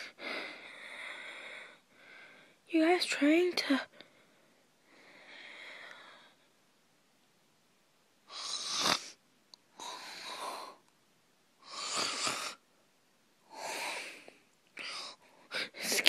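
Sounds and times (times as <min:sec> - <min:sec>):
boy breathing heavily: 0:00.0 - 0:02.6, 0:03.9 - 0:06.5, 0:09.8 - 0:10.8, 0:13.5 - 0:16.0.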